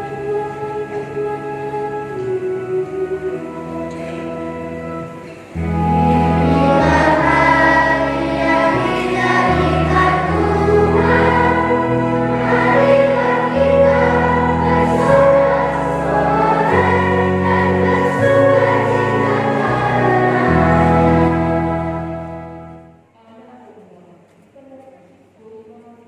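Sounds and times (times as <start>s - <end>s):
children's choir singing a hymn: 0.0s - 22.9s
electronic keyboard chords: 0.0s - 23.1s.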